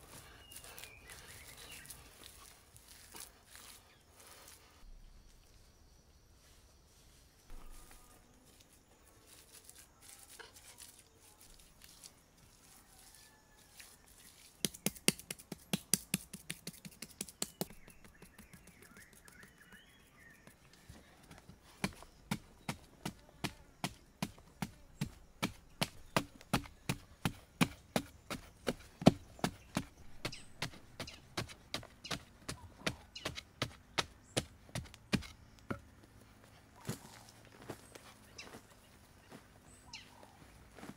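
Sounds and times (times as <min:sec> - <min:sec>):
digging tool chopping into soil: 0:14.6 - 0:19.9, 0:21.8 - 0:35.9.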